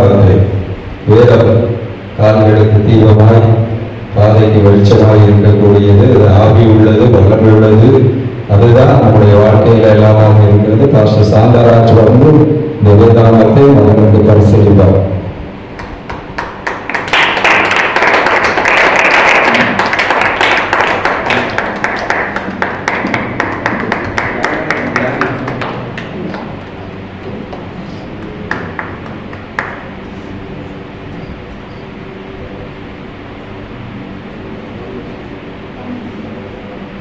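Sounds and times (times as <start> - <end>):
audience applause: 15.8 - 26.6, 27.5 - 29.9.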